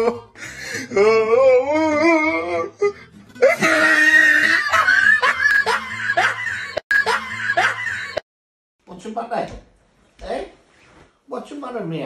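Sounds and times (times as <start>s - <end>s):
women laughing: 3.4s - 8.2s
women screaming: 3.4s - 8.2s.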